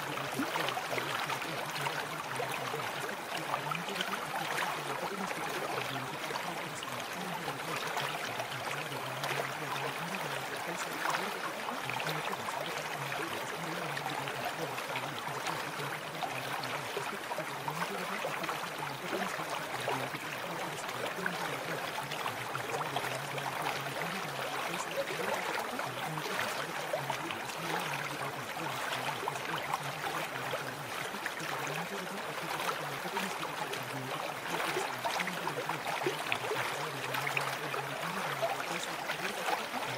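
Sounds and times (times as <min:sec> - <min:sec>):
faint low murmur: 0:00.0 - 0:39.9
rushing water: 0:00.0 - 0:39.9.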